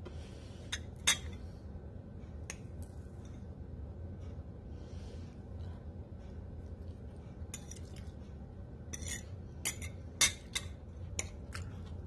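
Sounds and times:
low steady hum: 0.0 - 12.0
fork clinking on ceramic plate: 8.9 - 11.4.

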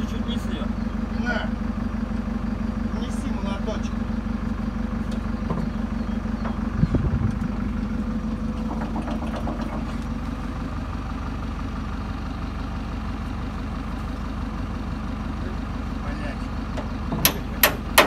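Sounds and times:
diesel engine idling: 0.0 - 18.0
loud metallic clank: 17.1 - 18.0.

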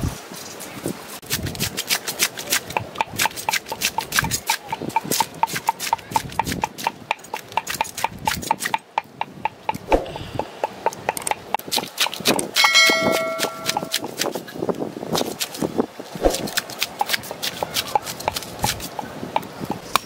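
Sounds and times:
short chime with click: 12.6 - 13.9
knife scraping fish scales: 16.2 - 18.9.

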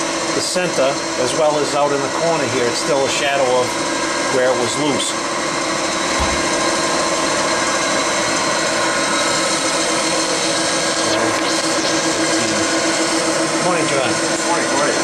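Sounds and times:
milling machine humming: 0.0 - 15.0
low thump: 6.1 - 6.5.

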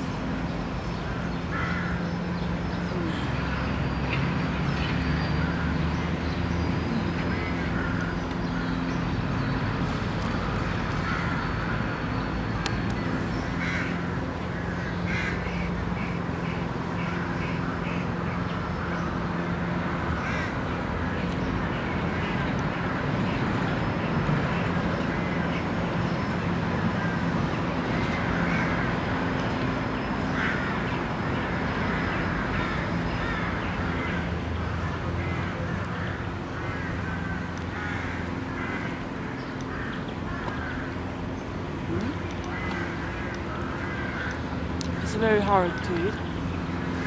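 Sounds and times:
birds calling: 0.0 - 47.0
low hum of traffic: 0.0 - 47.0
crow-like caws: 1.1 - 2.2, 10.9 - 12.0, 13.6 - 18.0, 20.1 - 20.6, 28.1 - 29.1, 30.3 - 41.1, 42.5 - 46.1.

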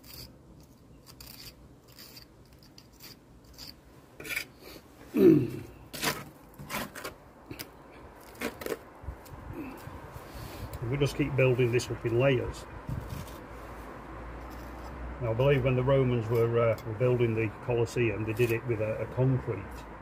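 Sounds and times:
trowel scraping mortar: 0.0 - 4.8, 5.9 - 7.2, 14.4 - 17.4, 18.2 - 19.2.

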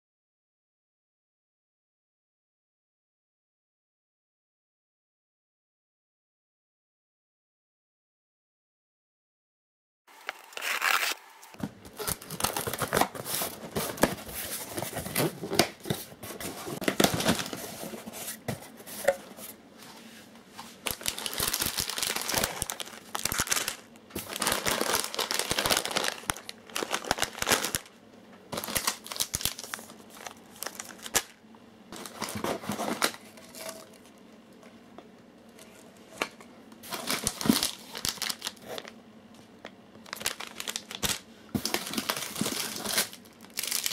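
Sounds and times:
plastic packages crinkling: 10.2 - 17.9, 20.8 - 31.4, 32.0 - 34.1, 36.8 - 39.0, 40.0 - 43.9
cardboard box rummaging: 11.9 - 19.3, 20.9 - 27.8, 32.0 - 33.9, 41.6 - 43.8.

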